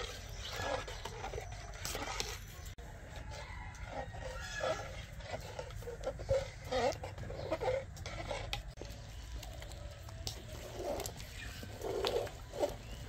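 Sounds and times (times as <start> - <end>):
animal calls: 0.0 - 8.6
ladle scraping and stirring pot: 0.0 - 9.8, 10.5 - 13.0.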